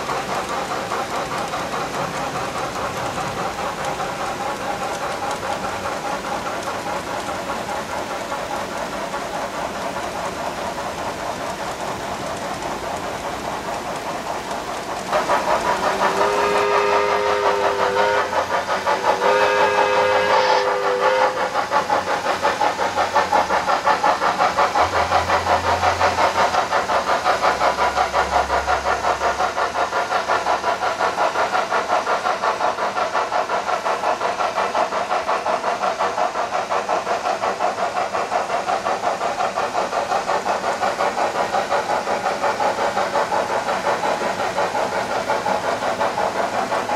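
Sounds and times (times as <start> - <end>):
model train wheels clicking: 0.0 - 46.9
two-note steam whistle: 15.9 - 21.6.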